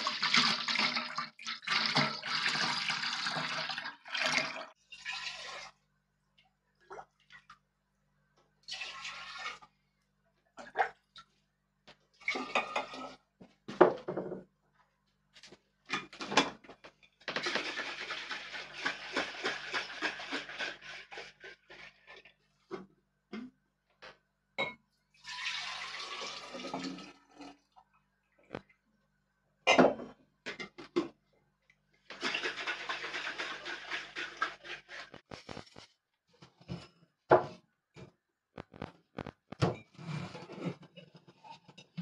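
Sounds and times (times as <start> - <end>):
liquid pouring and splashing: 0.0 - 5.8, 8.6 - 9.8, 17.3 - 22.3, 25.2 - 27.8, 32.1 - 35.6
pots and utensils clattering: 12.3 - 13.2, 32.1 - 35.2.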